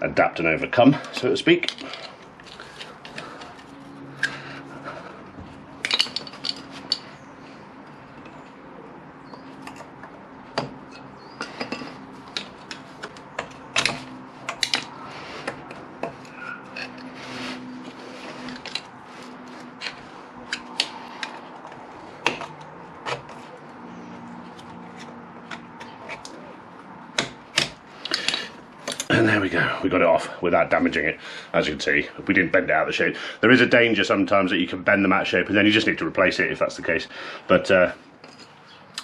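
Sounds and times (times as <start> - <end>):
metallic clicks and scraping: 1.0 - 4.4, 5.8 - 7.2, 9.3 - 29.1.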